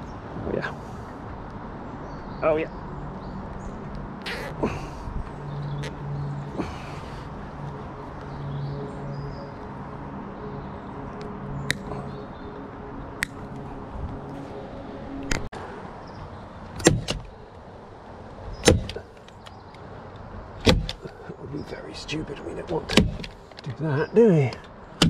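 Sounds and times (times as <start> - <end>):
sharp clicks and knocks: 16.8 - 17.3, 18.6 - 19.8, 20.6 - 21.2, 22.6 - 23.8.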